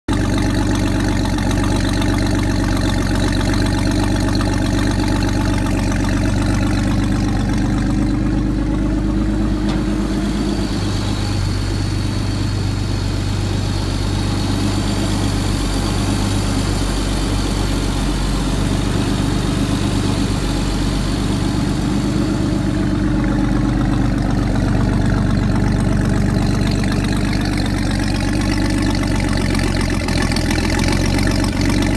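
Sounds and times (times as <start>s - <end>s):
boat engine idling: 0.0s - 31.9s
water splashing from exhaust: 0.1s - 31.9s.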